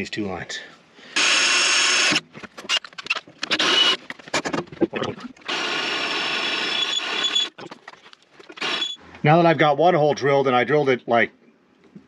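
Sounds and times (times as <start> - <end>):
cordless drill drilling into metal: 1.2 - 2.2, 3.4 - 4.0, 5.5 - 7.6, 8.6 - 9.0.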